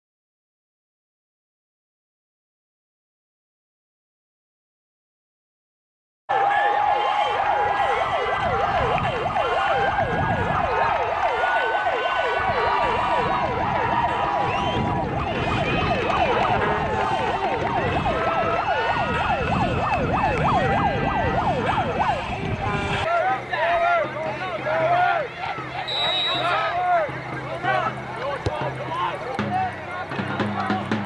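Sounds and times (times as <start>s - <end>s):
crowd yelling: 6.3s - 31.0s
siren yelping: 6.4s - 23.8s, 25.2s - 26.8s.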